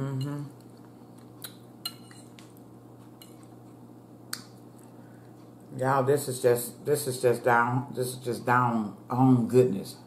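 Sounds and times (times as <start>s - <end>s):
fork clinking against plate: 1.5s - 2.4s, 3.2s - 3.5s.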